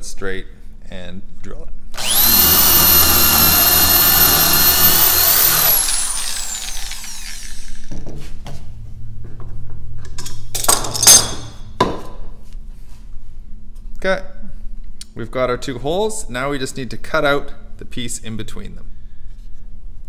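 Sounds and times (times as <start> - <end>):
drill boring through wood: 2.0 - 7.9.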